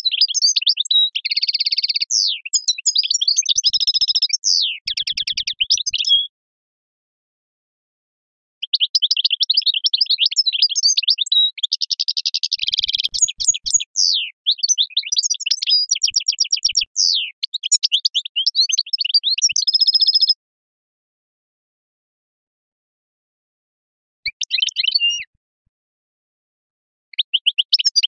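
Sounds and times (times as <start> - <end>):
songbird singing trills and chirps: 0.0 - 6.3, 8.6 - 20.4, 24.3 - 25.4, 27.1 - 28.0.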